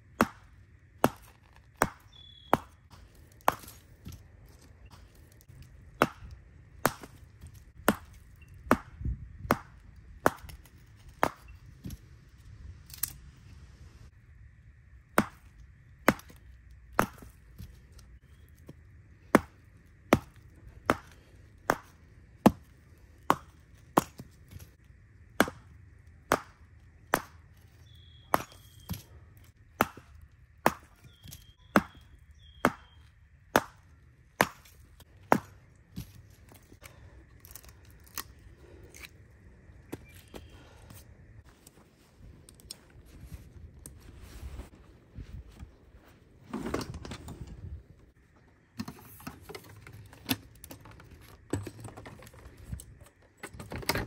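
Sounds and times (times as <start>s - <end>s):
firewood chopping cracks: 0.1s - 12.0s, 15.2s - 39.2s.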